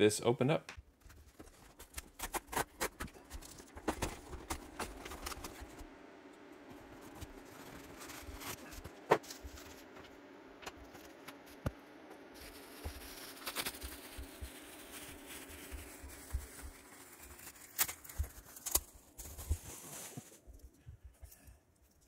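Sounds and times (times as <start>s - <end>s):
bubble wrap rustling and crinkling: 0.9s - 5.9s, 6.7s - 11.6s, 12.4s - 20.7s
sharp crackles: 12.4s - 20.0s.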